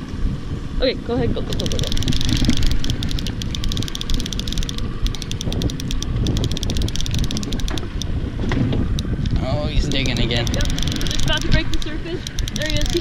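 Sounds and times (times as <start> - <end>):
wind rumble on microphone: 0.0 - 13.0
fishing reel clicker clicking: 1.5 - 8.1, 10.0 - 13.0.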